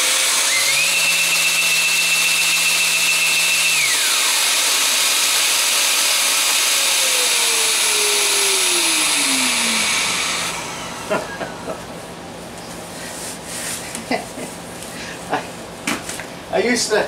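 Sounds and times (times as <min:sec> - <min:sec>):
dust extractor suction rush: 0:00.0 - 0:11.7
sander whining: 0:00.0 - 0:12.2.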